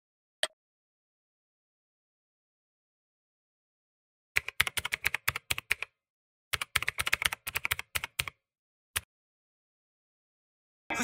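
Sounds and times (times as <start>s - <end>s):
keyboard typing clicks: 4.4s - 5.9s, 6.6s - 8.4s.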